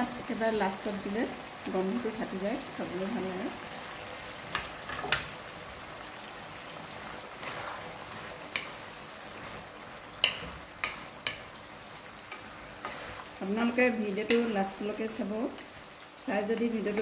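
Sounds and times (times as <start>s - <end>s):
curry sizzling in a pan: 0.0s - 17.0s
wooden spoon knocking on pan: 10.2s - 11.5s.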